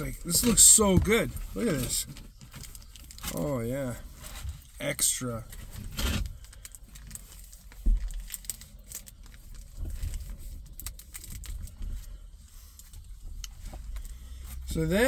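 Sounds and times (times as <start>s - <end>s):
plastic packet crinkling: 1.6s - 3.6s, 6.3s - 11.8s.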